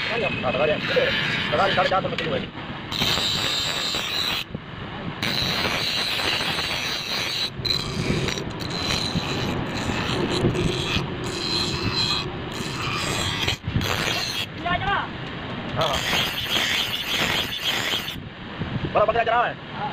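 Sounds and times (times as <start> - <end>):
bench grinder grinding knife blade: 0.0 - 2.0, 2.9 - 4.5, 5.2 - 14.5, 15.8 - 18.2.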